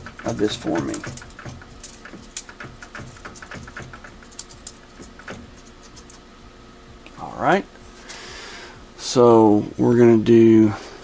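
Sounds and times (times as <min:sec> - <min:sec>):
small tools clicking: 0:00.0 - 0:06.2
faint steady hum: 0:00.0 - 0:11.0.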